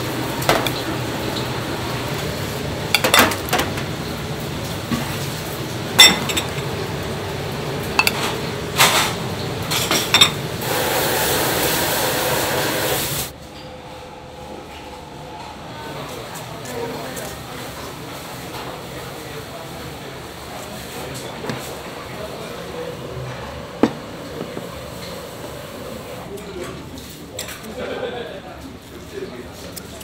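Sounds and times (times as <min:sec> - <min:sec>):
kitchen din: 0:00.3 - 0:01.5, 0:02.8 - 0:04.0, 0:05.9 - 0:06.8, 0:07.8 - 0:10.5, 0:21.0 - 0:27.9
ceramic dishes clinking on metal: 0:03.0 - 0:03.4, 0:06.0 - 0:06.6, 0:08.0 - 0:08.3.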